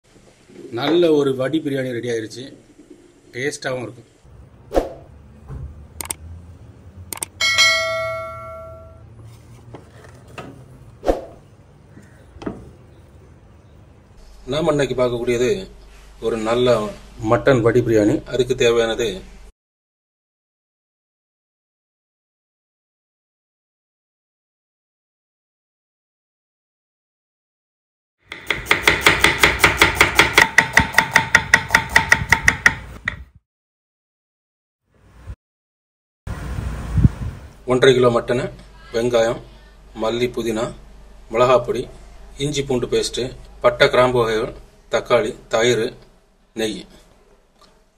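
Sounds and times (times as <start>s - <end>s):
bell-like chime: 7.4s - 9.0s.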